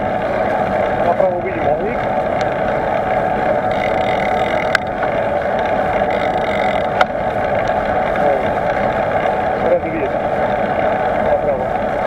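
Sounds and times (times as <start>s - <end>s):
bicycle rolling on road: 0.0s - 12.0s.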